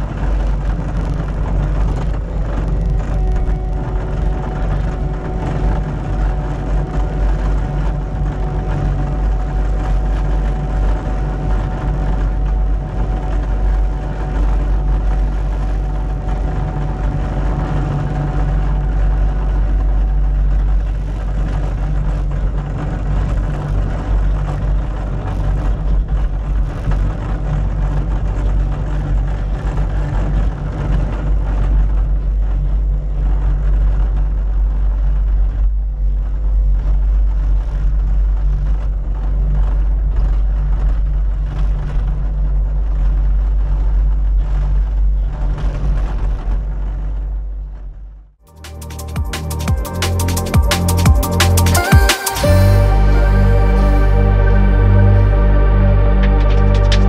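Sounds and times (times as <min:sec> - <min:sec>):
diesel engine rumbling: 0:00.0 - 0:23.5, 0:48.5 - 0:57.0
faint steady whine: 0:00.0 - 0:57.0.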